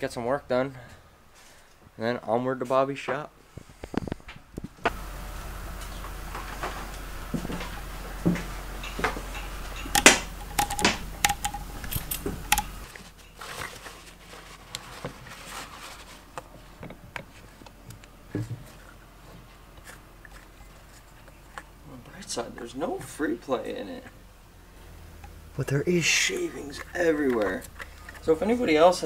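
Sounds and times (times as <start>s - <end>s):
low hum: 4.8s - 14.7s
metal tools knocking and clicking: 8.8s - 12.9s.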